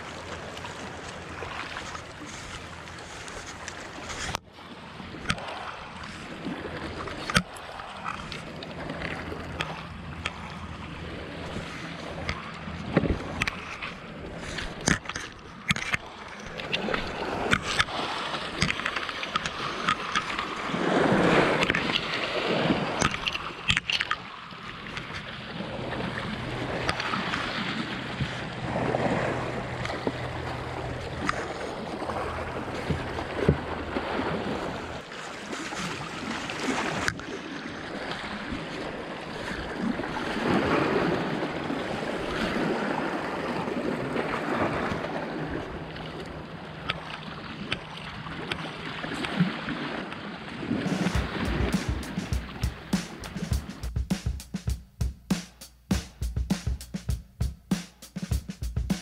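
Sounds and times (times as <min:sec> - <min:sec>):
sea water splashing on rocks: 0:05.0 - 0:45.5, 0:46.9 - 0:53.8
sharp clicks and knocks: 0:18.6 - 0:20.4, 0:50.9 - 0:59.0.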